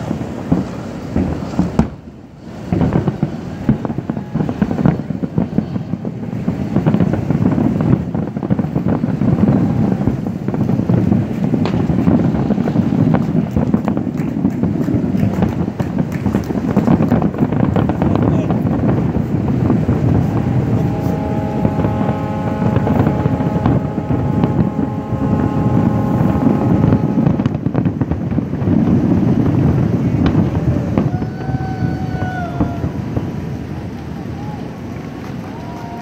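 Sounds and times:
fireworks booms and crackles: 0:00.0 - 0:36.0
steady horn-like tone: 0:20.2 - 0:27.7.

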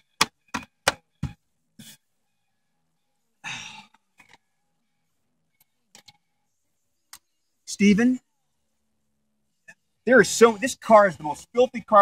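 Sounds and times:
person exhaling: 0:03.4 - 0:04.0.

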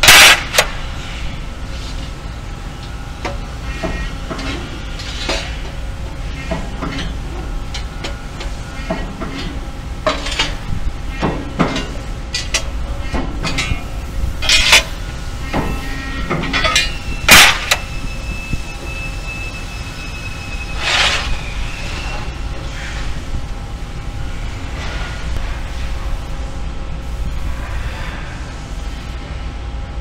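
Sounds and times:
low factory hum: 0:00.0 - 0:30.0
thin high whine: 0:13.6 - 0:29.4.

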